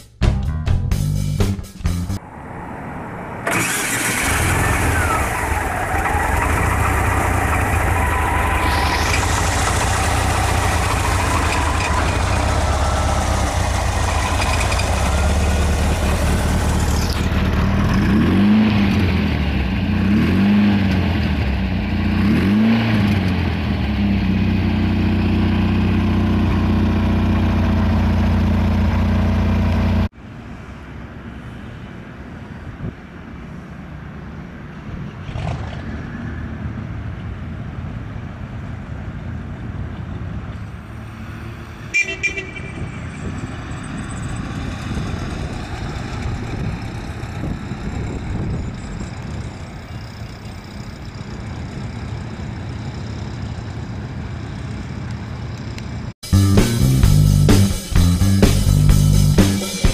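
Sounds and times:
car driving: 0:02.1 - 0:59.9
engine revving: 0:02.2 - 0:30.1, 0:35.2 - 0:36.2, 0:56.3 - 0:59.9
car engine idling: 0:03.4 - 0:17.8.

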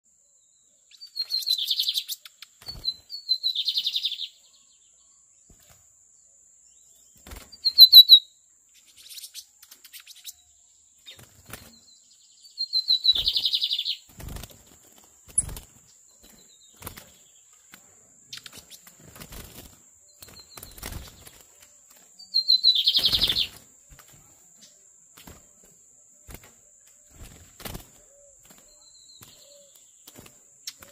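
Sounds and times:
bird singing trilled phrases: 0:00.4 - 0:05.3, 0:06.8 - 0:14.5, 0:15.2 - 0:21.5, 0:22.2 - 0:23.6, 0:28.0 - 0:30.0
wing flutters: 0:01.2 - 0:03.9, 0:07.1 - 0:08.2, 0:11.0 - 0:11.8, 0:13.0 - 0:24.3, 0:25.1 - 0:30.9.

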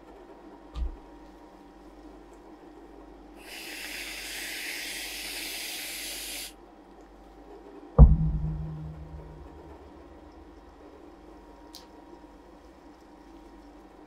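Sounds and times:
aerosol can spraying hiss: 0:03.4 - 0:06.5.

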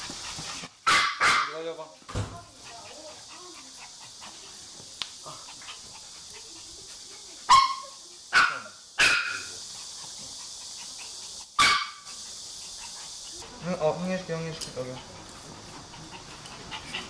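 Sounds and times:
dogs barking excitedly: 0:00.0 - 0:04.7, 0:05.3 - 0:17.0.

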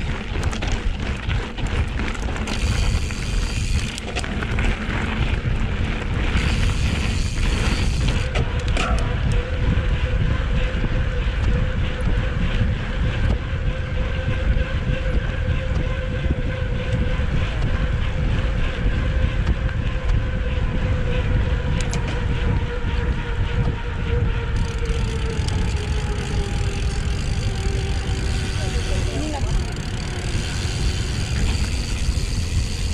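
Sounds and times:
bike tyres humming on asphalt: 0:00.0 - 0:32.9
wind rushing over microphone: 0:00.0 - 0:32.9.

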